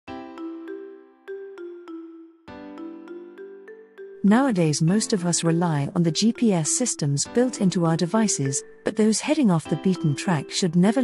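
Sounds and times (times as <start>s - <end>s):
intro music with ringing notes: 0.1s - 5.2s.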